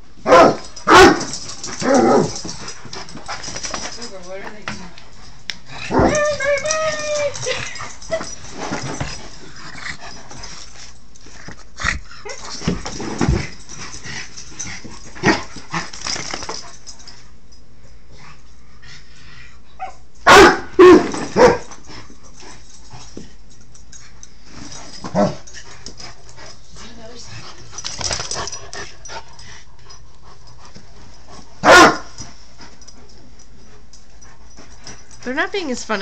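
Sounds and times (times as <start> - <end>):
dogs barking and yipping: 0.3 - 4.0, 19.8 - 21.8, 31.6 - 32.2.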